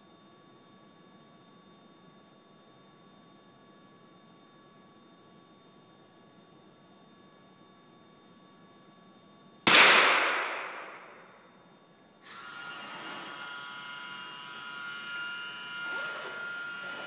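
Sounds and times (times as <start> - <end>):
multi-tone hum: 0.0 - 17.0
rifle shot: 9.7 - 11.4.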